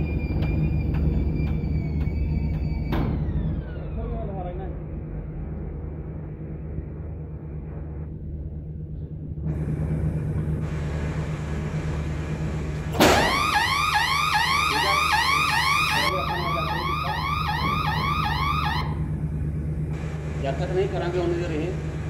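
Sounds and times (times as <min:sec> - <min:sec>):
steady low hum: 0:00.0 - 0:22.0
electronic alarm whooping: 0:13.1 - 0:19.1.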